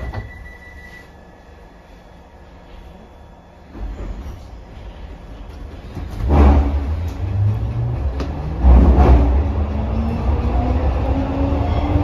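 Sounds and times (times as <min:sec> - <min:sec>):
train rumbling: 0:00.0 - 0:12.0
low hum rising in pitch: 0:06.3 - 0:12.0.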